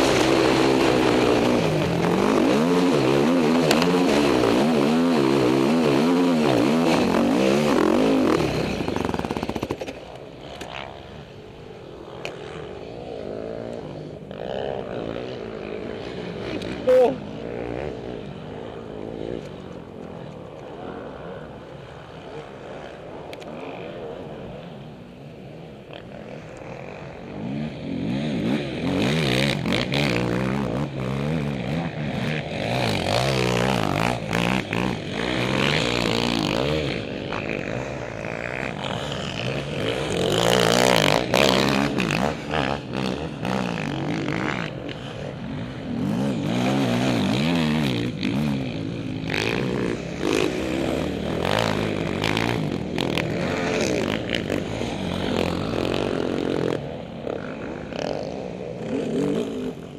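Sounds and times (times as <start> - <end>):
quad engine revving: 0.0 - 9.9, 27.4 - 59.9.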